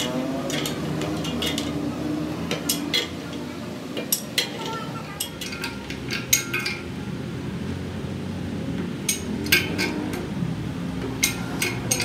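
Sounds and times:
wrench clinking and scraping on metal: 0:00.0 - 0:01.8, 0:02.5 - 0:03.4, 0:04.0 - 0:06.9, 0:09.0 - 0:10.3, 0:11.0 - 0:12.0.

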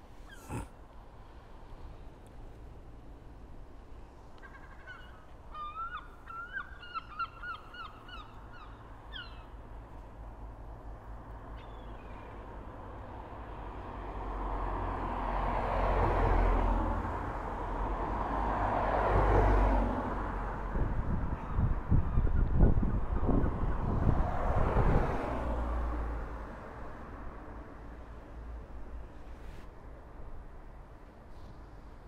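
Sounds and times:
bird calls: 0:04.4 - 0:09.6, 0:11.5 - 0:12.3
passing vehicle rumble: 0:12.2 - 0:29.7.

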